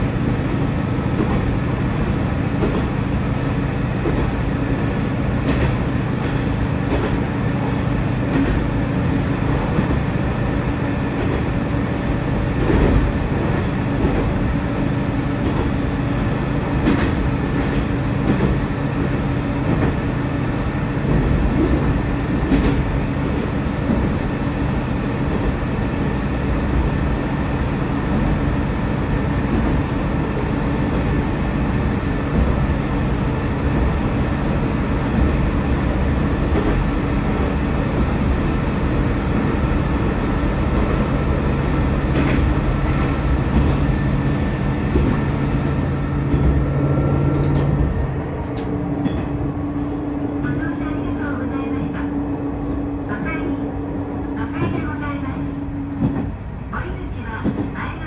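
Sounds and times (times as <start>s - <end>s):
diesel railcar engine drone: 0.0s - 58.0s
wheel-on-rail rumble: 29.3s - 58.0s.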